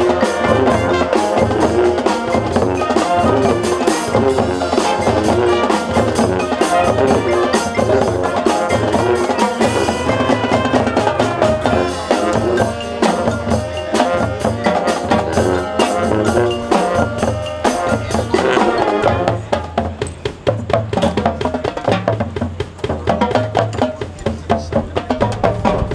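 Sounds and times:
brass and woodwinds: 0.0s - 20.0s
drumline: 0.0s - 25.9s
mallet percussion: 0.0s - 25.9s
marching band playing: 0.0s - 25.9s.

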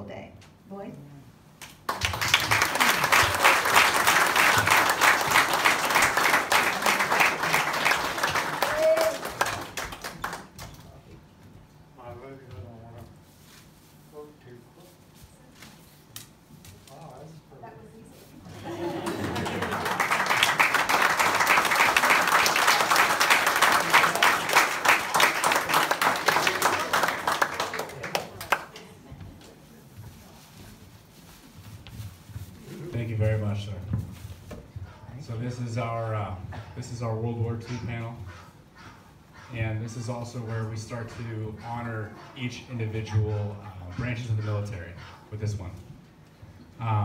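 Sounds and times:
people applauding: 1.8s - 10.9s, 18.5s - 29.0s.

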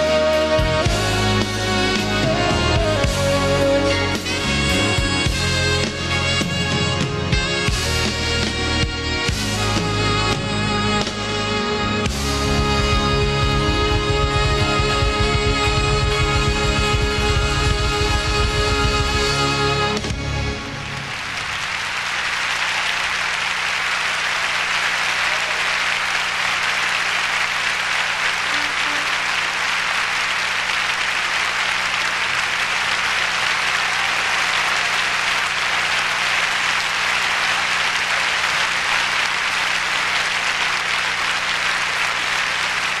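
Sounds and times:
band music: 0.0s - 43.0s
audience applauding: 12.0s - 43.0s.

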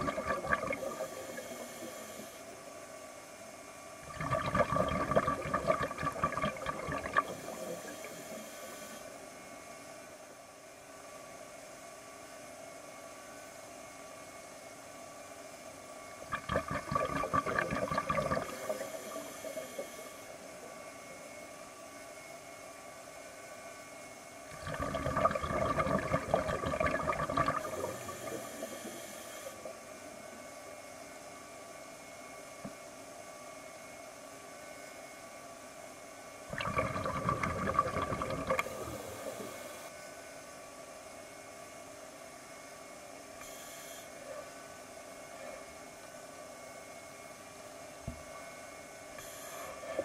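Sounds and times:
air bubbles gurgling underwater: 0.0s - 2.0s, 4.0s - 8.4s, 16.2s - 19.9s, 24.5s - 29.1s, 36.5s - 39.7s
steady hiss: 0.7s - 2.6s.

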